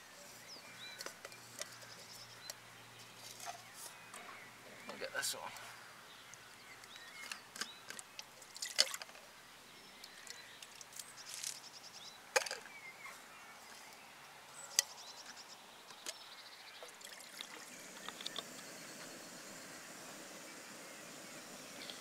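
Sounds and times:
water pouring into pot: 17.0 - 22.0.

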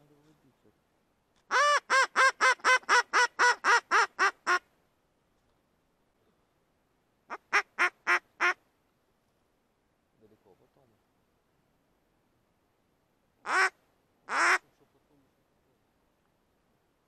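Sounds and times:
duck call quacks: 1.5 - 4.6, 7.3 - 8.6, 13.4 - 14.6.

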